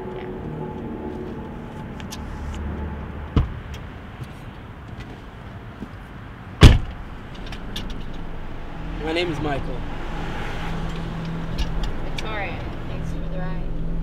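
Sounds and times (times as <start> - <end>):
car door slamming: 3.3 - 3.7, 6.6 - 7.1.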